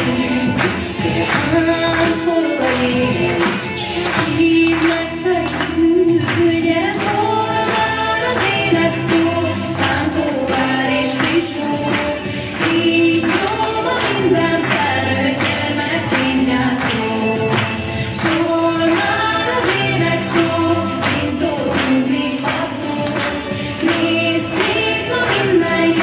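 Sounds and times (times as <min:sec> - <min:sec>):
backing music with steady beat: 0:00.0 - 0:26.0
group of voices singing: 0:00.0 - 0:26.0.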